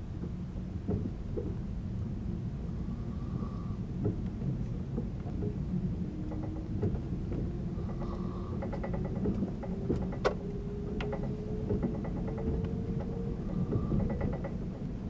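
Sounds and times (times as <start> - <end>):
train wheels rumbling on rail: 0.0 - 15.0
rail joint clicks: 3.4 - 15.0.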